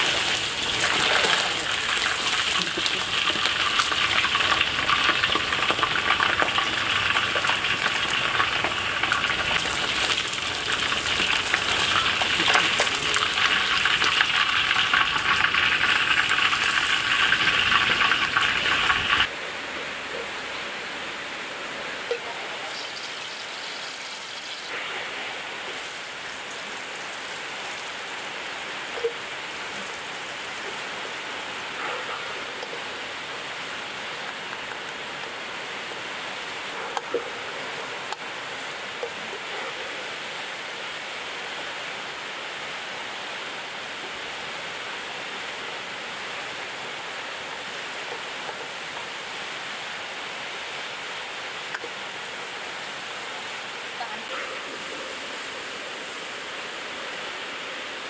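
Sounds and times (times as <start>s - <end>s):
oil sizzling in a wok: 0.0s - 19.3s, 22.8s - 24.7s.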